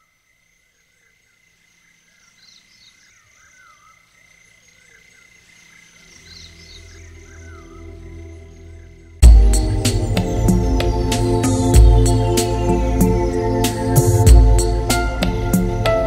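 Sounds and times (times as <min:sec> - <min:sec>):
low ambient music: 0:06.0 - 0:16.0.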